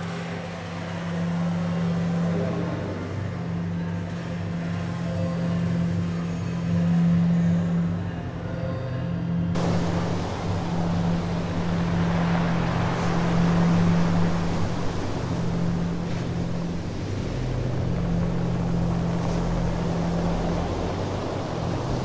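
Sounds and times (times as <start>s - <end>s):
rushing noise of travel: 9.6s - 22.0s
vehicle engine humming: 9.6s - 22.0s.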